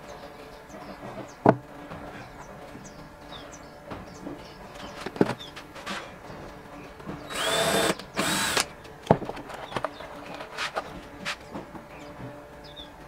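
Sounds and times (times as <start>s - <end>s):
cordless driver motor whine: 7.3s - 8.7s.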